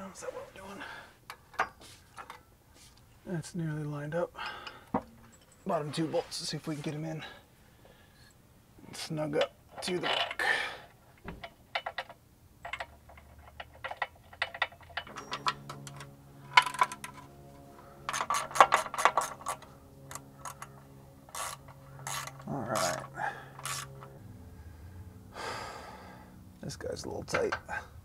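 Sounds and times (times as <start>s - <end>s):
steady low hum: 0.0s - 28.0s
metal clinks: 4.4s - 5.9s, 11.4s - 24.1s
hand ratchet clicking: 18.1s - 24.0s.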